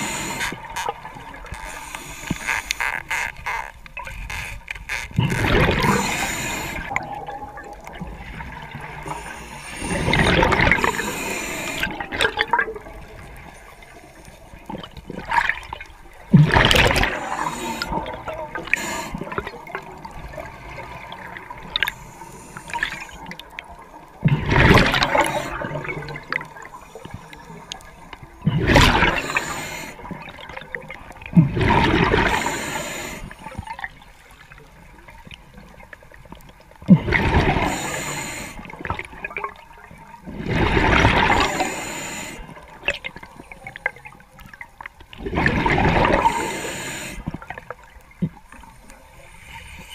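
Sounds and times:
breath bubbling underwater: 5.2s - 13.2s, 16.3s - 22.0s, 24.2s - 26.8s, 28.5s - 33.1s.

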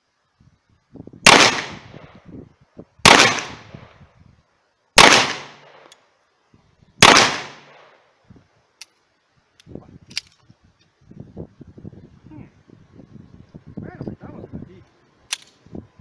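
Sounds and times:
pistol shots with echo: 1.3s - 2.0s, 3.0s - 3.7s, 5.0s - 5.8s, 7.0s - 7.9s.

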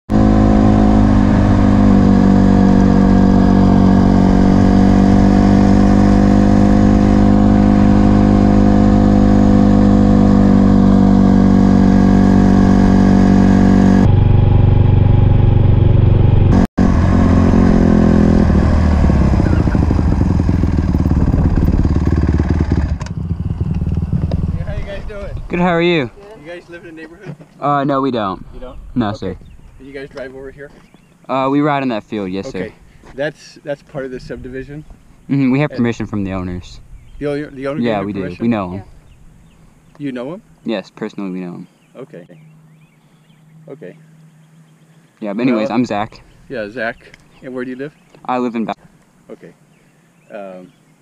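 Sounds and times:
dirt bike engine running: 0.1s - 25.8s.

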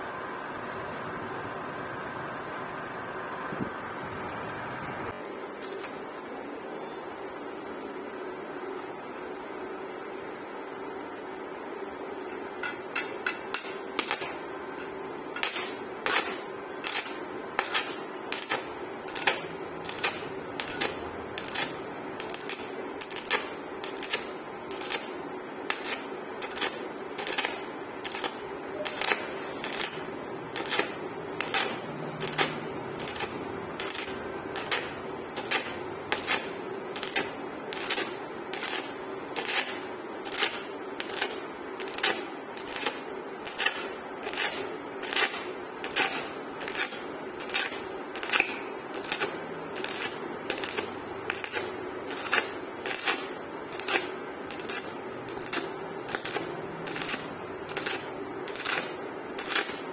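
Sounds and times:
welding arc crackling: 12.2s - 59.9s.

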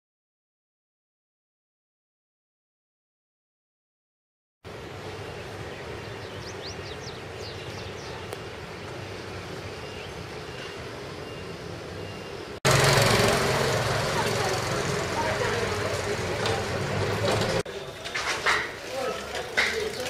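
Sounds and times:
street noise: 4.6s - 20.0s
distant traffic hum: 4.7s - 20.0s
bird chirps: 5.3s - 8.4s
motorbike engine passing: 12.6s - 17.7s.

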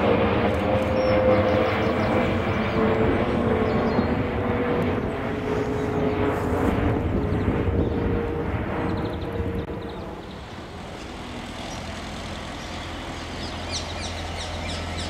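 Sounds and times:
engine rumble with whine: 0.0s - 15.0s.

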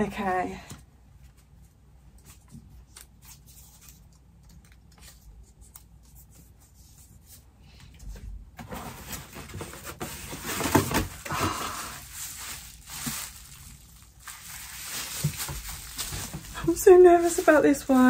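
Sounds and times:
packaging rustling and crinkling: 8.6s - 18.0s.

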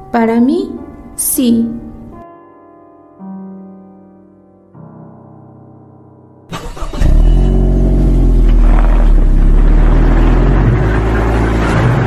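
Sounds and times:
soft piano music: 0.0s - 6.5s
engine starting with rattle: 6.5s - 9.0s
engine low rumble: 6.6s - 12.0s.

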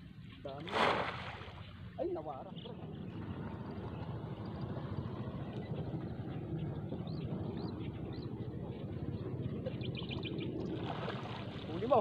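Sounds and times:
wind rumble on microphone: 0.0s - 12.0s
bird twittering trill: 1.6s - 11.2s.

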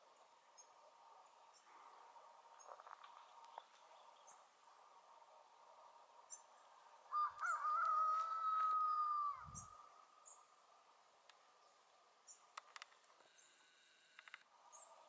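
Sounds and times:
steady background hum: 0.0s - 7.6s
rooster crowing: 7.1s - 9.8s.

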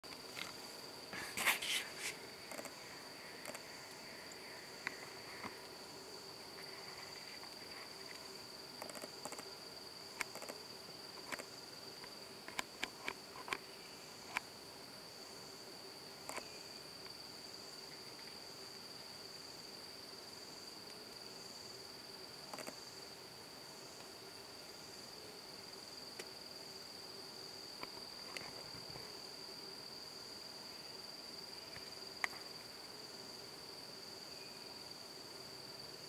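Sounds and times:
insect trilling: 0.4s - 11.6s
sharp clicks and snaps: 8.8s - 9.5s, 10.2s - 10.6s, 22.5s - 22.8s.

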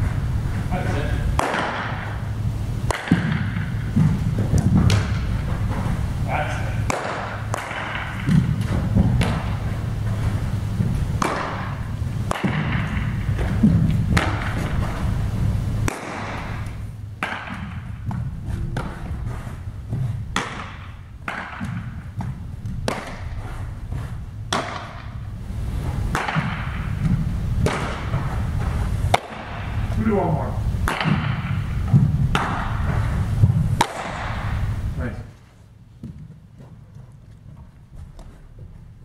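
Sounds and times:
steady low hum: 0.0s - 39.0s
baseball cracks and pops: 1.4s - 2.1s, 2.8s - 3.6s, 6.8s - 9.5s, 11.2s - 14.7s, 15.8s - 18.2s, 22.6s - 23.4s, 26.1s - 26.8s, 27.6s - 28.1s, 30.8s - 31.5s, 33.8s - 34.5s.

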